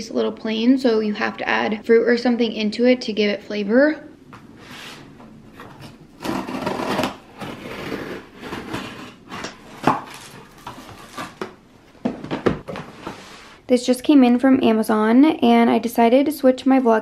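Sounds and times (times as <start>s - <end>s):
scissors scraping tape and cardboard: 5.7s - 11.6s.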